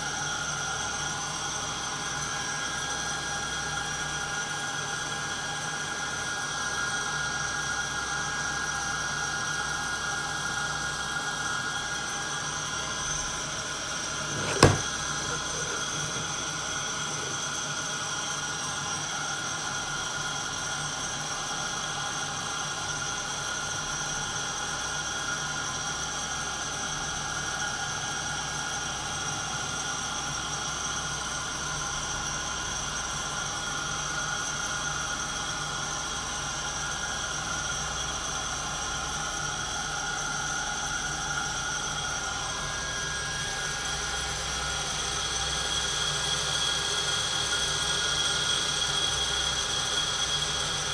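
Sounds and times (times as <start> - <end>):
coffee roaster motor whir: 0.0 - 50.9
sharp knock: 14.3 - 15.4.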